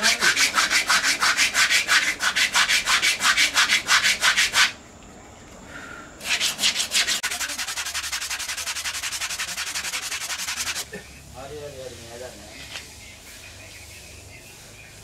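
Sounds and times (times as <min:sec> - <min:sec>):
sandpaper rubbing on wood: 0:00.0 - 0:04.8, 0:06.2 - 0:10.9.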